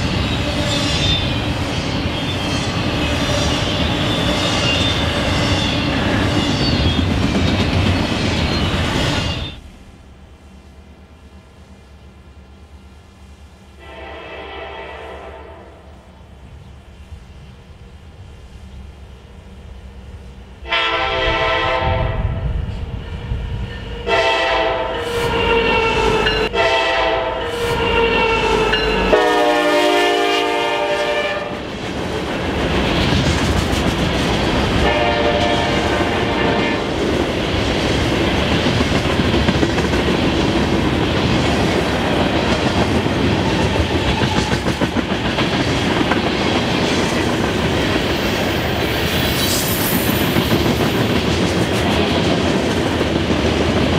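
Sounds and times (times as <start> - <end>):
freight train wheels on rails: 0.0 - 53.9
locomotive air horn blasts: 13.8 - 15.9, 20.6 - 22.4, 24.0 - 31.6, 34.8 - 36.8.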